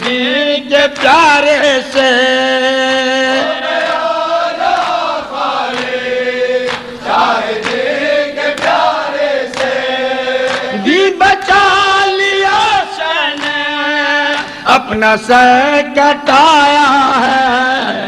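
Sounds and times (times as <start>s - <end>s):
men chanting a lament: 0.0s - 18.0s
hands slapping chests: 4.8s - 6.0s, 6.6s - 10.8s, 13.2s - 13.7s.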